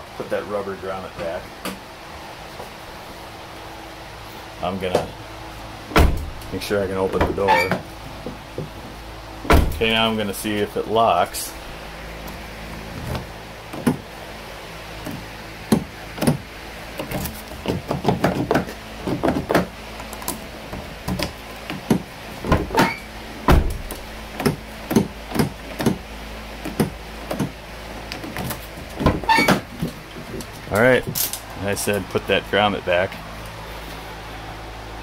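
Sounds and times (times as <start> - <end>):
heavy thump: 6.0 - 6.4, 9.5 - 10.0.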